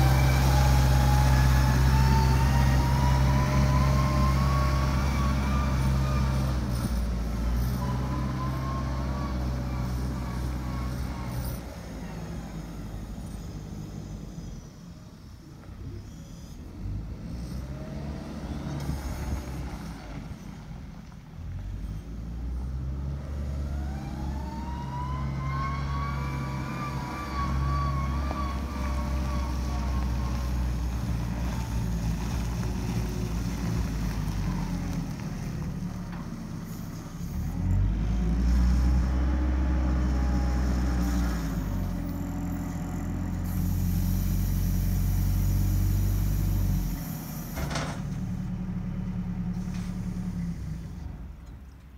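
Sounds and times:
wheel loader diesel engine running: 0.0 - 51.9
hiss: 43.3 - 48.0.

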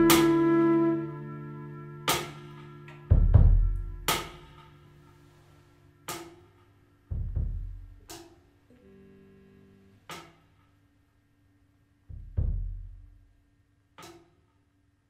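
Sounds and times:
held instrument note: 0.0 - 6.5
deep drum hits: 3.1 - 4.6, 7.1 - 8.1, 12.1 - 13.2.

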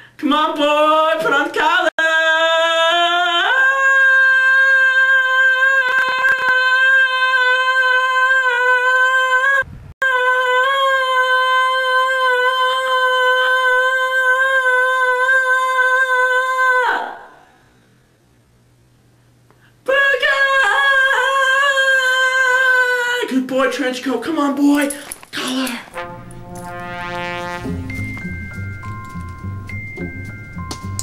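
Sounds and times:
person singing a long high note: 2.0 - 17.4, 25.4 - 28.3.

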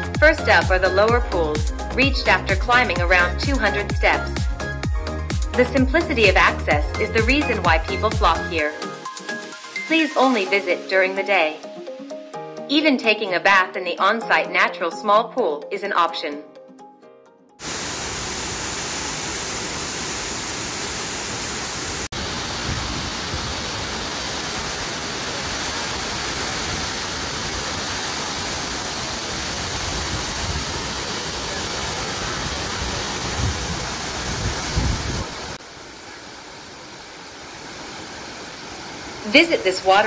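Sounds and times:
waterfall roar: 17.6 - 40.0.

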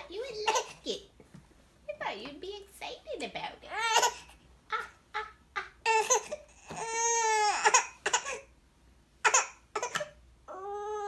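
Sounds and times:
infant crying: 3.7 - 8.5, 9.2 - 11.0.

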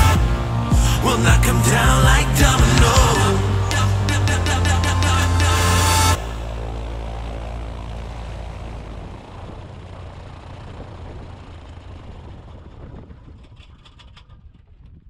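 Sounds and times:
propeller aircraft engine drone: 0.0 - 15.0.

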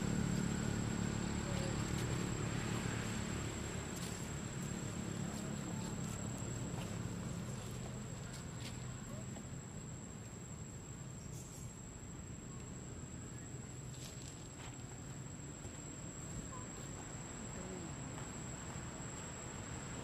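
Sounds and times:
high-pitched insect tone: 10.4 - 20.0.

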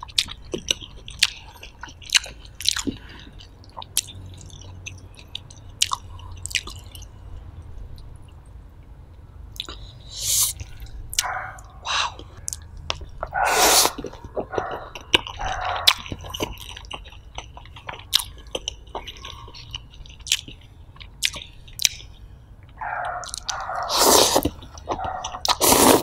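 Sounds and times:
chewing with wet mouth smacks: 0.0 - 8.4, 9.5 - 26.0
slurping: 13.4 - 15.9, 23.2 - 26.0.

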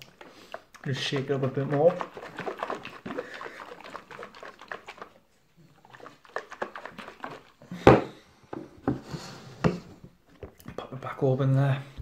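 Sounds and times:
shaker bottle sloshing and rattling: 0.0 - 8.1.

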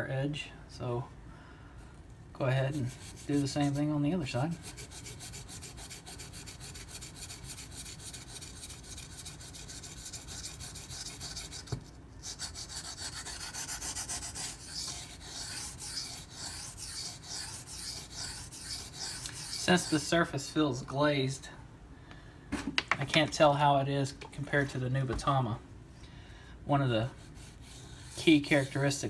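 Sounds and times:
knife scraping on whetstone: 4.6 - 20.2, 27.1 - 29.0.

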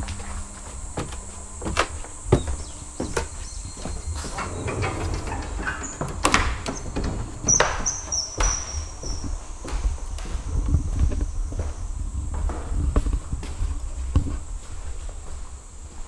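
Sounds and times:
footsteps on wooden floor: 0.0 - 16.0
sliding door on track: 3.0 - 9.3
high squeal: 3.4 - 9.3.

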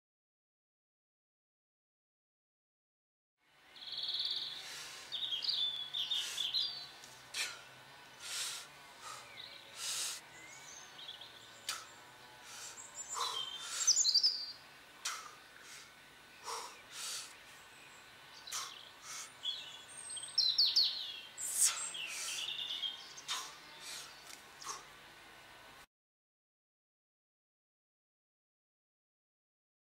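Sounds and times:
birds singing and chirping: 3.7 - 25.0.

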